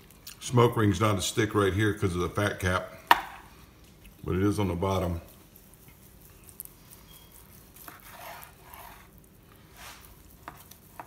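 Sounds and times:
knife sawing through meat: 0:07.8 - 0:09.1.

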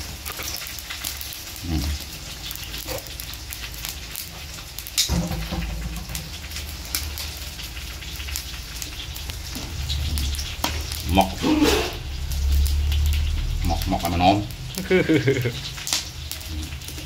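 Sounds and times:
charcoal crackling and popping: 0:00.0 - 0:17.0.

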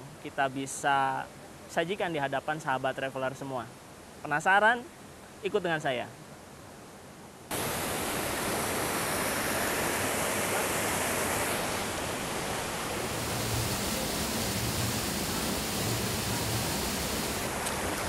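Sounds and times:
waterfall rushing: 0:07.5 - 0:18.0.

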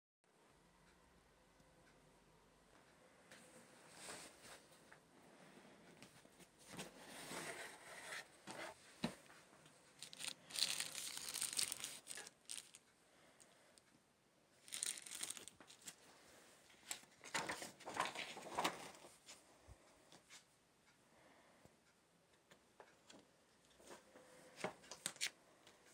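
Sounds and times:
plastic sleeve crinkling: 0:10.0 - 0:12.8, 0:14.6 - 0:16.0.

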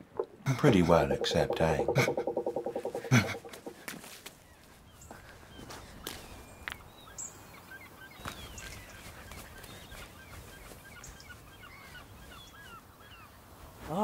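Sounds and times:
sharp knock: 0:01.1 - 0:03.7.

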